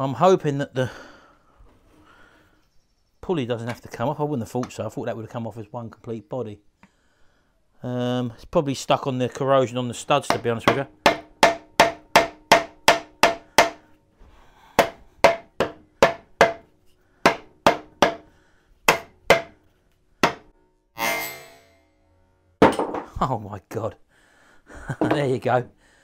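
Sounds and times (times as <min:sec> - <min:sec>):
wooden mallet striking metal: 0:10.2 - 0:13.8, 0:14.8 - 0:18.3, 0:18.9 - 0:19.6, 0:20.2 - 0:21.9, 0:22.6 - 0:23.1.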